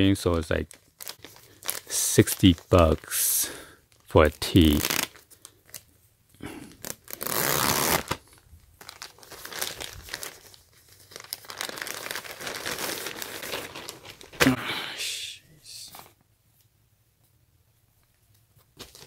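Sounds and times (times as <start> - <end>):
plastic crinkling: 0.4 - 3.1, 6.7 - 14.5
plastic mailer ripping open: 4.6 - 5.2, 6.8 - 10.5, 11.1 - 14.5.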